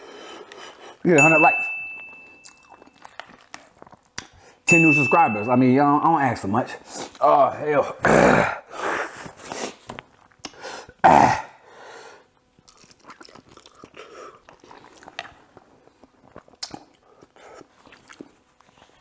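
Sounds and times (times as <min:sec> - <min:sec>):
person slurping and chewing noodles: 0:02.4 - 0:04.5, 0:12.6 - 0:19.0.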